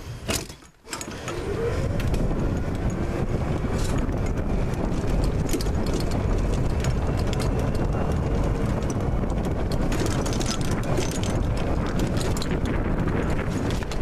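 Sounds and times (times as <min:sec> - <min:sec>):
golf cart rumbling: 0:00.3 - 0:14.0
golf clubs clattering in bag: 0:03.7 - 0:14.0.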